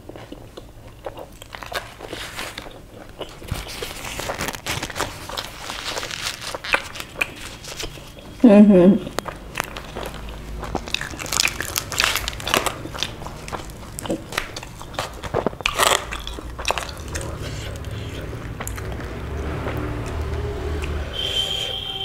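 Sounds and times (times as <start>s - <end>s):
fried bread tearing with crackles: 1.4s - 8.2s, 9.2s - 18.8s
steady high tone: 20.4s - 22.0s.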